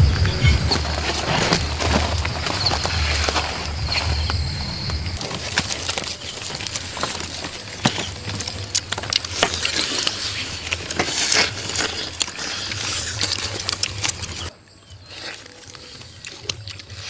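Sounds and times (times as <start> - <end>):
roasted meat and skin tearing: 5.1 - 17.0.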